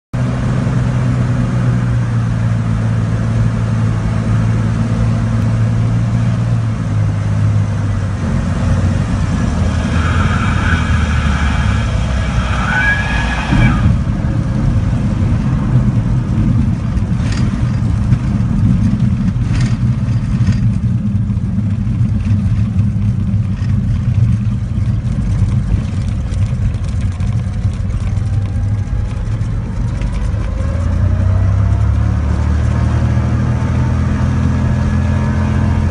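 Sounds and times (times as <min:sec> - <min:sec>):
plane engine and propeller: 0:00.2 - 0:35.9.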